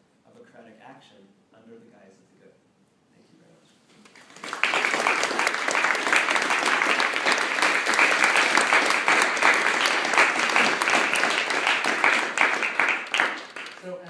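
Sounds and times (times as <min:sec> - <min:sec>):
audience applauding: 0:04.0 - 0:14.0
hands clapping close by: 0:04.0 - 0:14.0.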